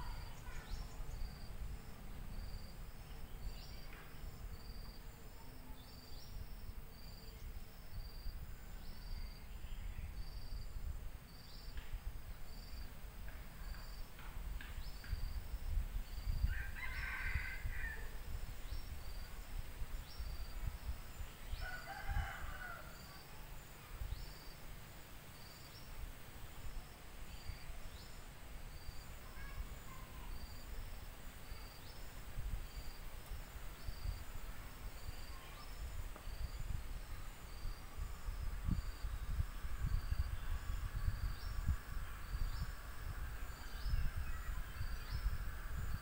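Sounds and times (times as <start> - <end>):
insect chirping: 0.0 - 46.0
rooster crowing: 16.5 - 18.1, 21.6 - 23.0.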